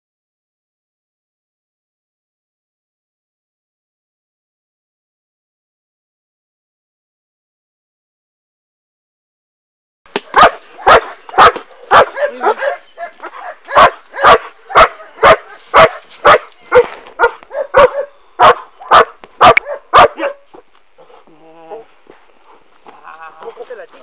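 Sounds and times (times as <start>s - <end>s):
dog barking loudly: 10.3s - 20.4s.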